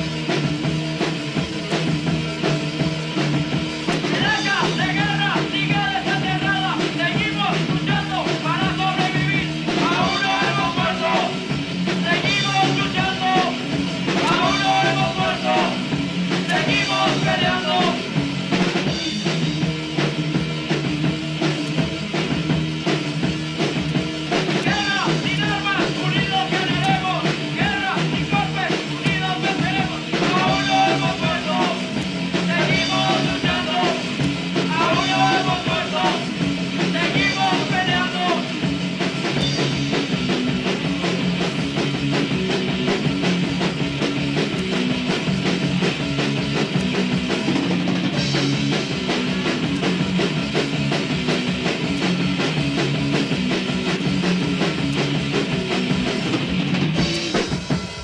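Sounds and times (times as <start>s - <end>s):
punk rock band playing: 0.0s - 58.0s
person singing: 4.0s - 11.5s, 12.1s - 18.1s, 24.6s - 38.6s.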